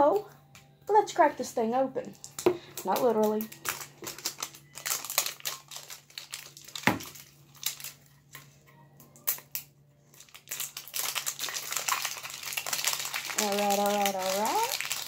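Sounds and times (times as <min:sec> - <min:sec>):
plastic shrink wrap crinkling: 0:02.0 - 0:08.6, 0:09.2 - 0:15.0.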